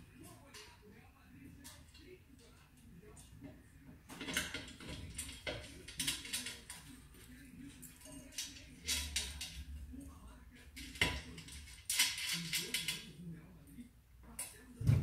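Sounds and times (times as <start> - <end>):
metal clicks and clatter: 4.1 - 7.0, 7.7 - 9.7, 10.8 - 13.2.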